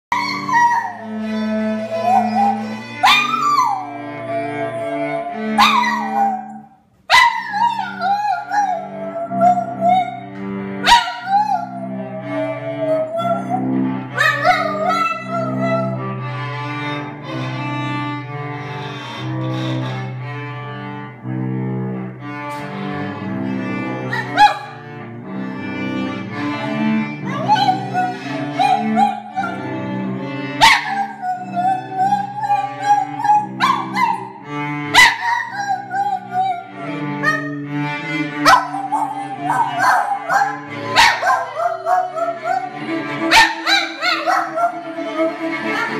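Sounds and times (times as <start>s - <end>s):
dog howling: 0.1s - 16.0s, 27.3s - 29.7s, 30.6s - 34.4s, 35.0s - 37.6s, 38.4s - 45.9s
cello and viola bowed notes: 0.1s - 45.9s.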